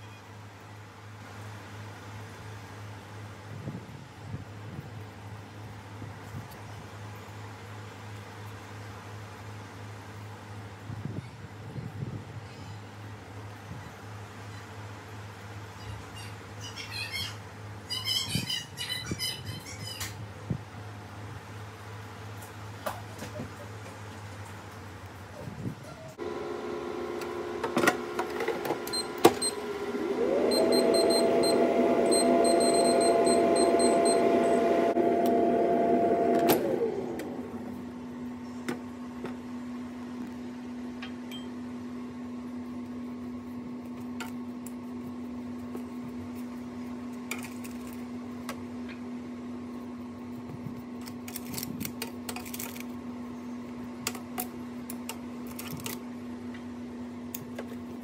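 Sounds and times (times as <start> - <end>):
air fryer fan whirring: 0.0 - 58.0
faint steady hum: 26.2 - 58.0
short high beeps: 30.5 - 34.3.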